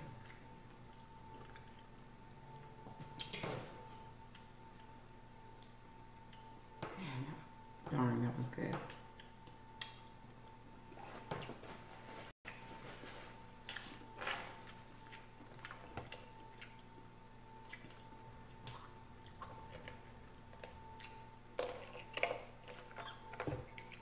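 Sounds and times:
wet chewing: 0:00.2 - 0:02.1, 0:04.2 - 0:05.0, 0:08.9 - 0:10.6, 0:13.6 - 0:24.0.

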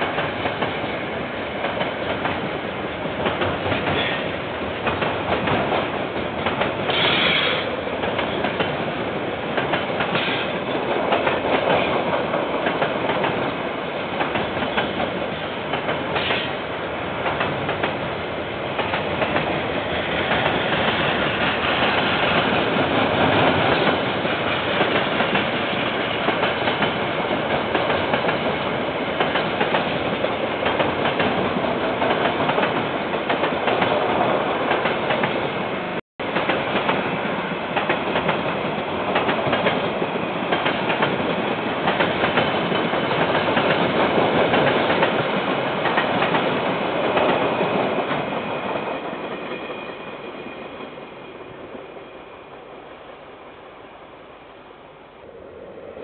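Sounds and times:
train wagons rumbling past: 0:00.0 - 0:52.7.

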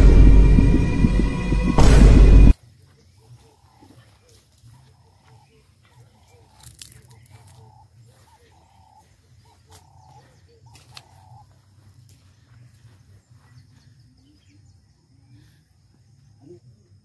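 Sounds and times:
steady low hum: 0:00.0 - 0:02.6.

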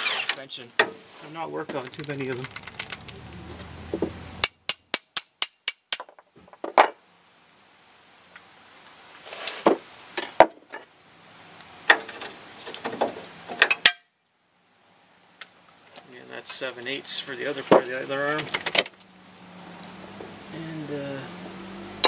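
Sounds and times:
sharp metallic clicks: 0:01.8 - 0:03.2
metal tools clanking: 0:04.7 - 0:07.1.

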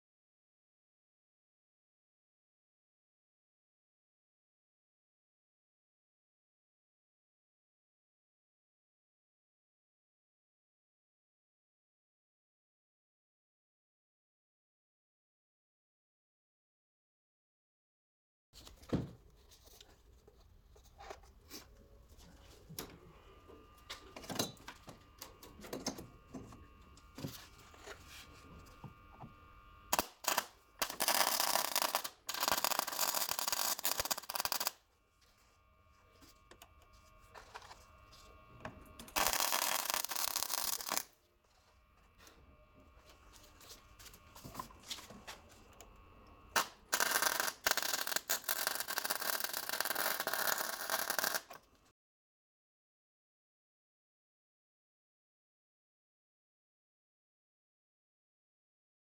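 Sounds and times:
welder sizzling: 0:22.3 - 0:51.6.

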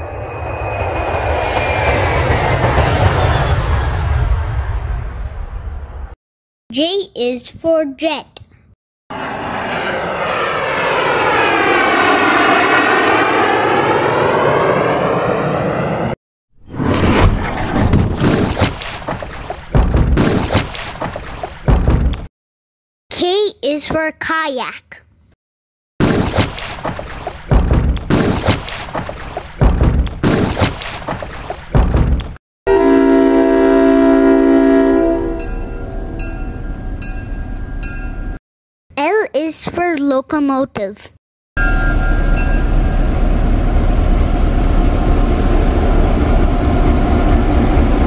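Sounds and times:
jet aircraft flying past: 0:00.0 - 0:06.2, 0:09.1 - 0:18.0
loud low thumps: 0:19.7 - 0:20.5, 0:21.7 - 0:22.3, 0:27.5 - 0:28.5, 0:29.6 - 0:30.6, 0:31.7 - 0:32.4.

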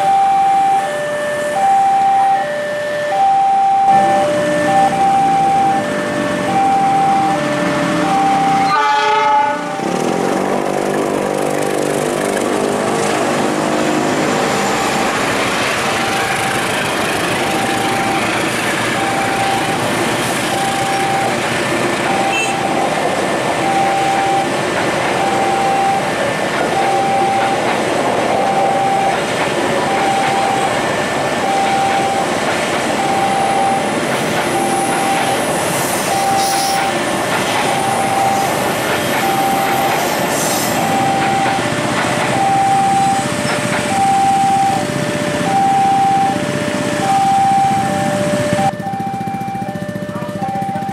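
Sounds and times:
crossing warning signal tone: 0:00.0 - 0:10.3, 0:13.3 - 0:50.9
train carriages running on rails: 0:00.0 - 0:50.9
train horn: 0:08.6 - 0:09.8, 0:22.3 - 0:22.6.

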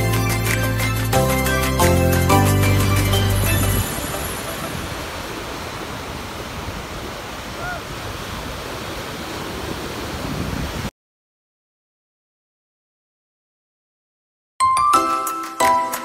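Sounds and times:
small waves breaking on beach: 0:03.6 - 0:10.9.

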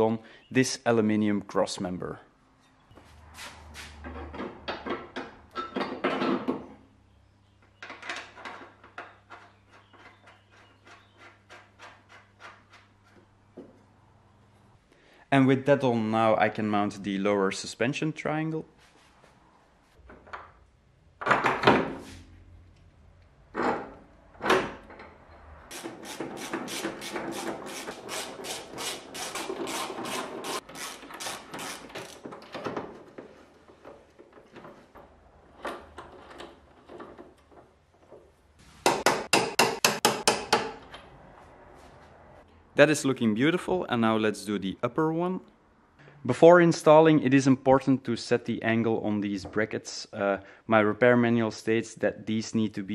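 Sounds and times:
ratchet wrench clicking: 0:25.7 - 0:32.2
metal knocks: 0:38.8 - 0:40.9.

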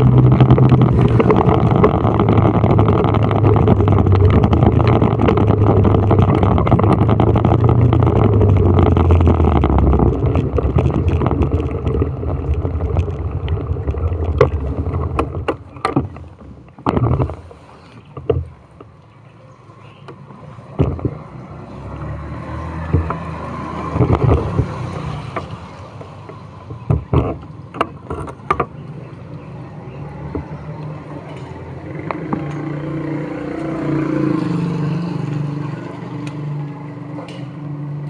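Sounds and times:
knocks and handling bumps: 0:00.0 - 0:19.0, 0:20.0 - 0:21.7, 0:22.7 - 0:29.0
vehicle running with road noise: 0:00.0 - 0:38.0.

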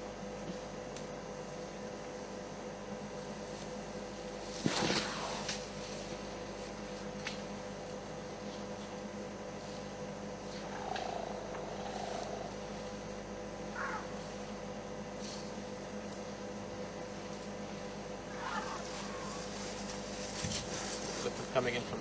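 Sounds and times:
steady electrical hum: 0:00.0 - 0:22.0.

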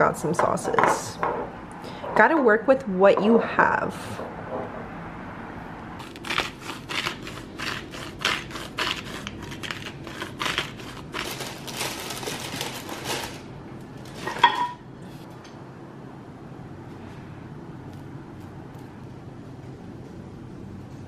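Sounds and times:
spice grinder grinding: 0:06.0 - 0:13.4.

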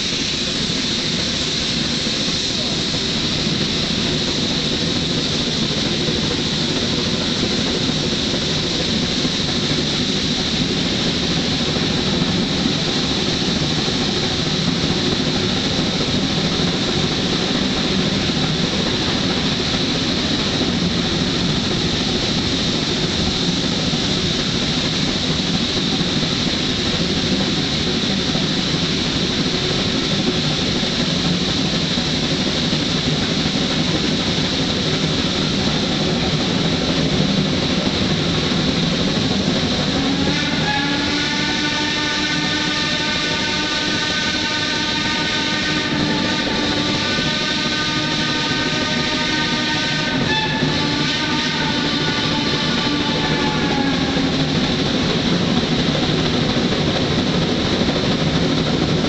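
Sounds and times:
steam locomotive exhaust: 0:00.0 - 0:59.0
train running noise: 0:00.0 - 0:59.0.

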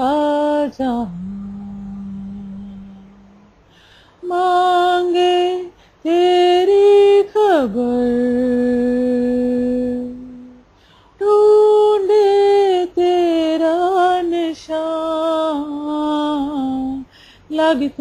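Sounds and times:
woman singing unaccompanied: 0:00.0 - 0:03.6, 0:04.2 - 0:18.0.

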